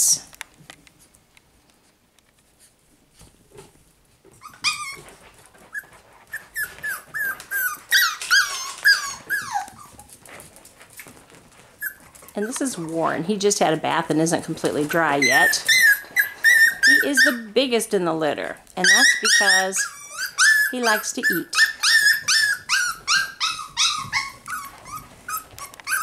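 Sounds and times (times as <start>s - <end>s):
puppies yipping and whining: 4.3s - 13.0s, 14.6s - 17.6s, 18.8s - 26.0s.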